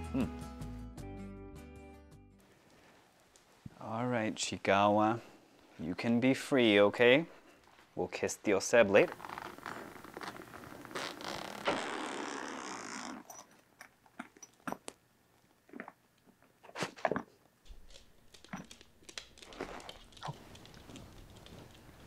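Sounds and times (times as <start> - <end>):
zipper pulled open: 9.1 - 13.5
light clicks and rustles: 17.7 - 22.0.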